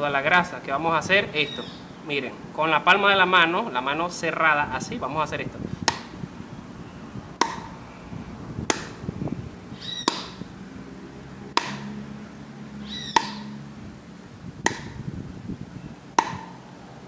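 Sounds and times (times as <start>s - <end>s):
palm slapping greased wheel bearing: 5.8s - 6.2s, 7.4s - 7.8s, 8.6s - 9.0s, 10.0s - 10.4s, 11.5s - 12.0s, 13.1s - 13.6s, 14.6s - 15.0s, 16.2s - 16.6s.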